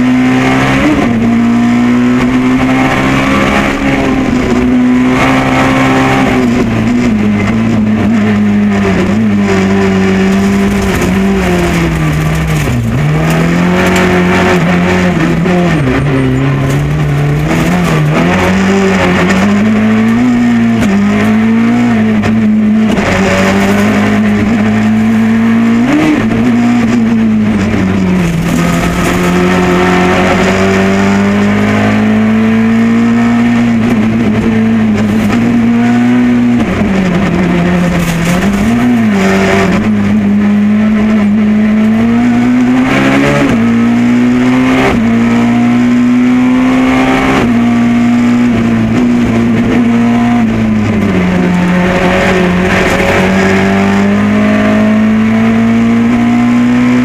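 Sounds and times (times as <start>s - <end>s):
car engine at high revs: 0.0s - 57.0s
road and tyre noise: 0.0s - 57.0s.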